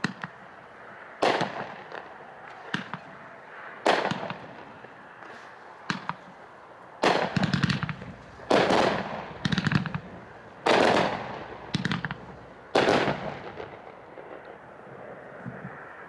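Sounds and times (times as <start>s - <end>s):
firework bangs: 1.2s - 3.2s, 3.8s - 4.8s, 5.8s - 6.3s, 7.0s - 14.6s
firework crackle: 7.0s - 14.9s.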